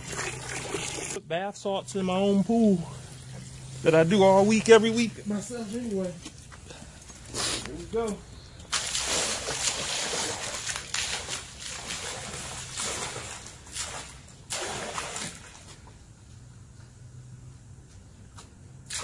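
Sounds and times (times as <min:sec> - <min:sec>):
water lapping and trickling: 0:00.0 - 0:01.2, 0:01.8 - 0:16.5
water splashing into a pool: 0:00.0 - 0:01.2, 0:08.7 - 0:15.8.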